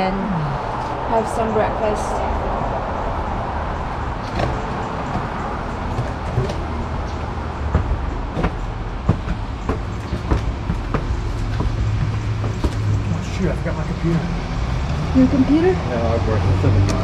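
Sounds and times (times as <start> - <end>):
steady low rumble: 0.0 - 17.0
footsteps on stairs: 3.8 - 14.6
sharp knocks: 4.2 - 13.2.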